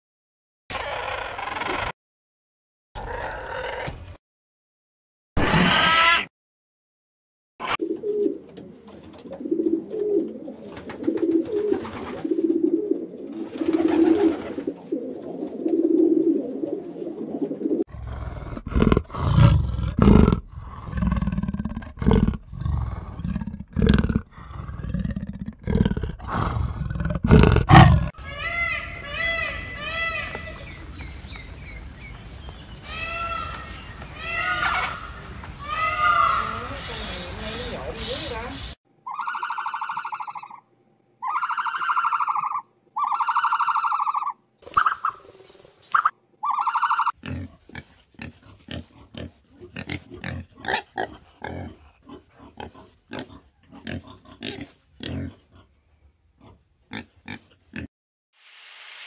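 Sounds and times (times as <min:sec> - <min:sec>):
pigeons cooing: 0:07.6 - 0:28.4
cheetah calling: 0:41.2 - 0:45.2.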